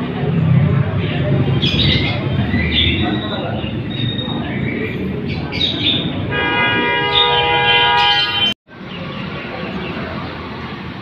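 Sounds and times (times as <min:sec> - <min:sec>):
songbirds chirping: 0:00.1 - 0:11.0
horn sounding a steady chord: 0:06.3 - 0:08.5.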